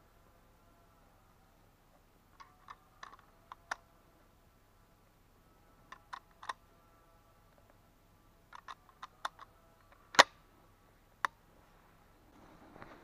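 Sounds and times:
rifle metallic clicks and knocks: 2.4 - 3.8, 8.5 - 9.5.

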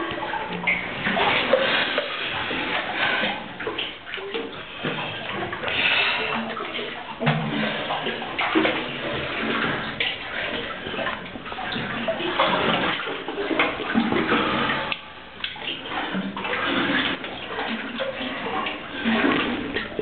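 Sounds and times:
water splashing and sloshing: 0.0 - 20.0.

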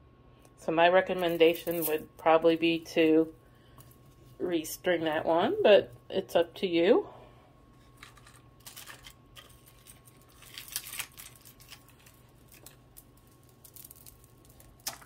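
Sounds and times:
beads and chain clicking: 11.2 - 15.0.

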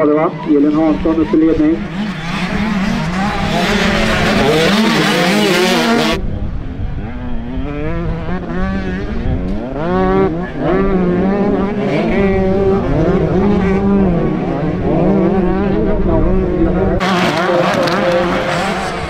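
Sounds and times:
motocross engines revving: 0.0 - 19.0.

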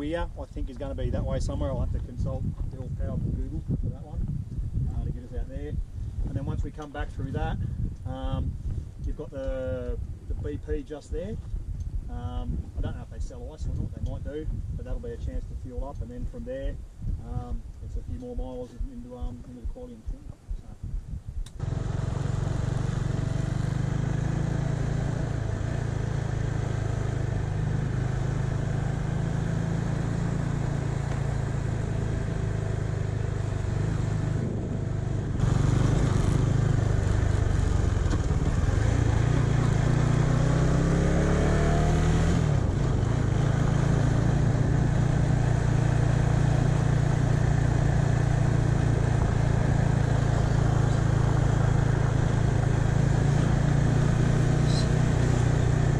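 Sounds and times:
motorcycle engine revving: 21.6 - 55.9.

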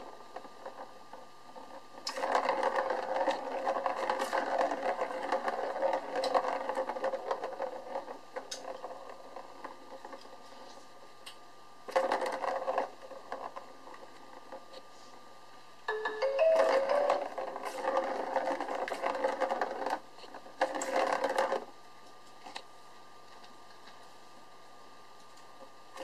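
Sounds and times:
plastic ball rolling in track: 0.0 - 10.8, 11.8 - 14.8, 15.9 - 22.7.

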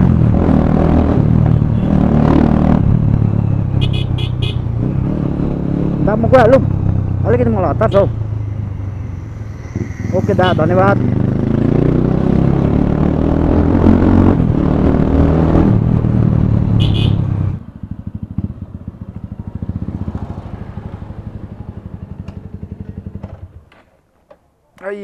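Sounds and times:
brief high squeal: 8.3 - 10.8.

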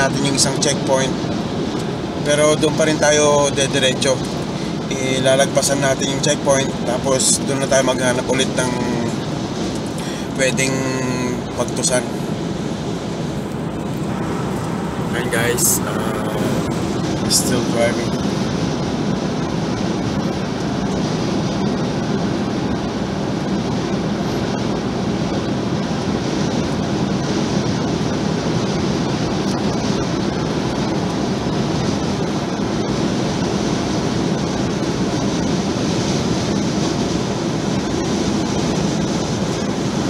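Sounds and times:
engine hum: 0.0 - 40.0
road and tyre noise: 0.0 - 40.0.

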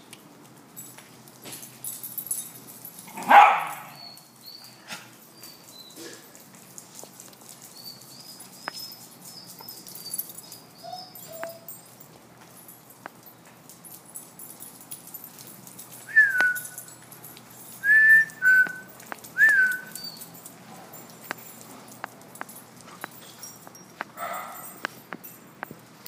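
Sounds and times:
dog whining: 9.4 - 11.8.

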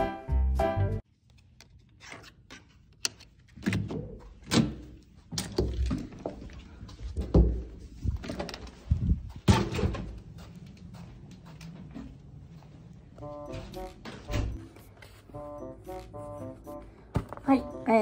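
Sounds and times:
door clunks and thuds: 7.2 - 10.2.

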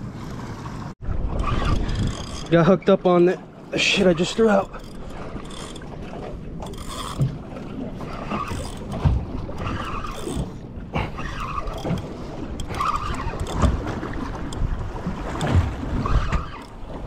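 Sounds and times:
wind buffeting microphone: 0.0 - 2.9
water slapping boat hull: 0.0 - 17.0.

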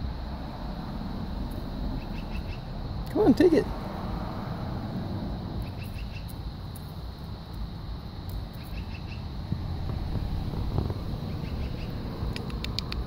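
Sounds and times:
steady low rumble: 0.0 - 13.0
faint bird chirps: 5.6 - 6.4.

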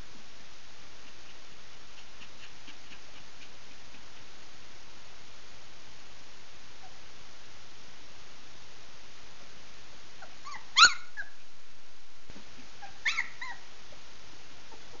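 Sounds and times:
steady hiss: 0.0 - 15.0
puppies yipping: 10.2 - 11.4, 12.8 - 13.7.

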